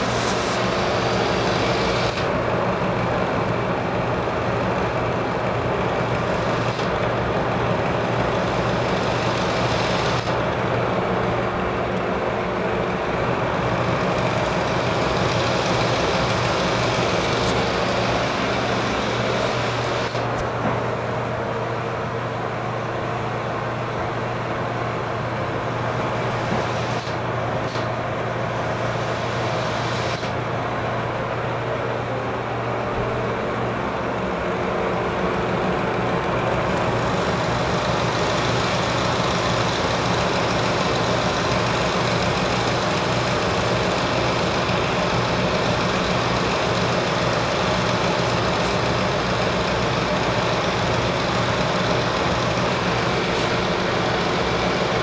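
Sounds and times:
exhaust fan running: 0.0 - 55.0.

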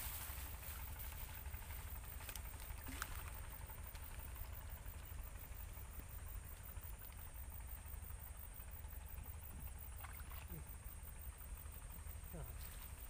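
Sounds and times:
rustling of ferns and grass: 0.0 - 5.4
steady low rumble: 0.0 - 13.0.

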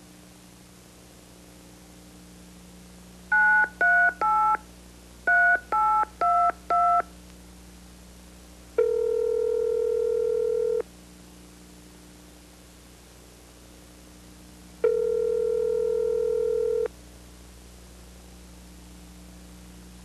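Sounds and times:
faint steady hum: 0.0 - 20.0
telephone keypad tones: 3.3 - 4.6, 5.3 - 7.1, 8.8 - 10.8, 14.8 - 16.9
telephone ringback tone: 3.3 - 4.6, 5.3 - 7.0, 8.8 - 10.8, 14.8 - 16.9.

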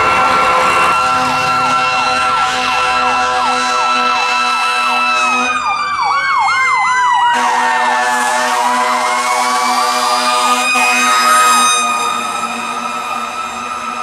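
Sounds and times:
electronic siren sweeps: 0.0 - 7.9, 9.0 - 14.0
mechanical siren whine: 0.0 - 8.2, 8.8 - 14.0.

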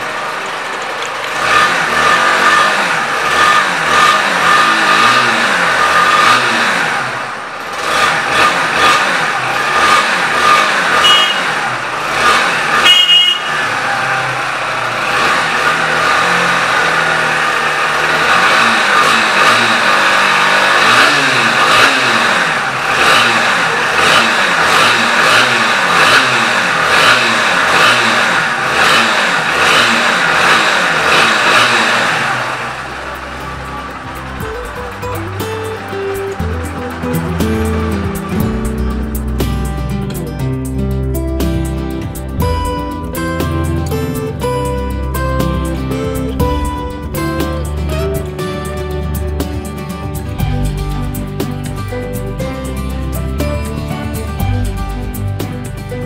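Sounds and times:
motorcycle engines revving: 0.0 - 56.0
street traffic: 0.0 - 56.0
horn beeps: 11.0 - 11.6, 12.8 - 13.7.

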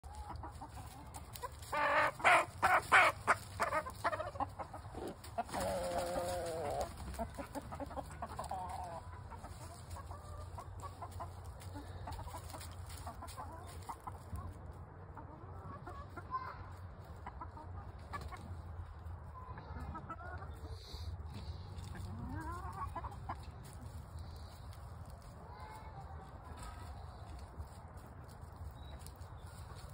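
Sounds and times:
chicken drawn-out call: 0.0 - 14.0
chickens squawking: 0.0 - 27.8
hen clucking: 0.0 - 29.9.

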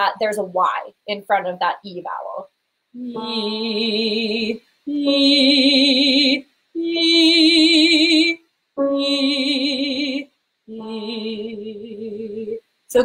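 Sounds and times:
woman singing held notes: 3.0 - 5.6.

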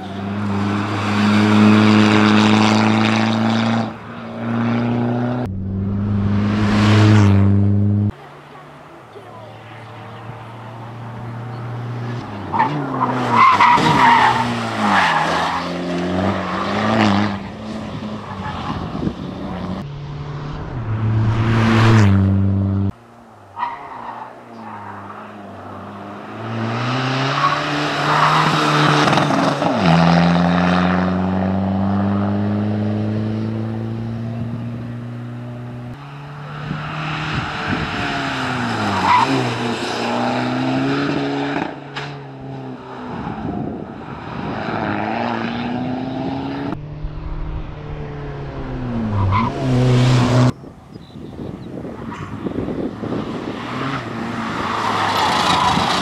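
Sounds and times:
car engine revving: 0.0 - 8.2, 10.4 - 23.0, 44.5 - 50.6.

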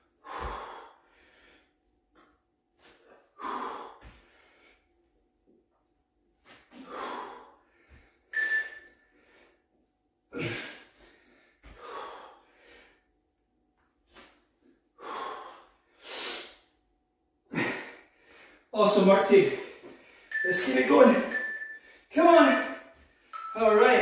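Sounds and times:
man breathing hard: 0.0 - 1.8, 2.9 - 4.9, 6.7 - 13.1, 14.9 - 16.8, 17.5 - 18.7.

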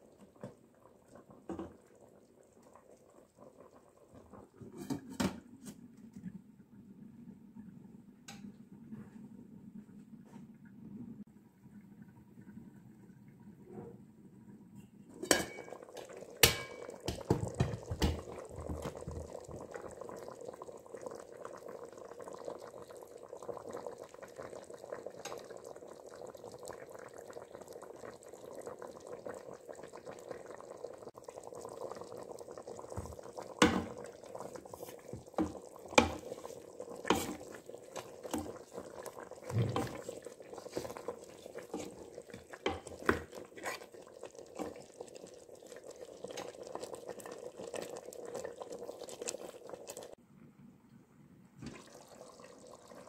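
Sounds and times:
stew bubbling in a pot: 0.0 - 50.2, 51.6 - 53.0
pot lid clattering: 4.7 - 5.4, 15.2 - 18.3.

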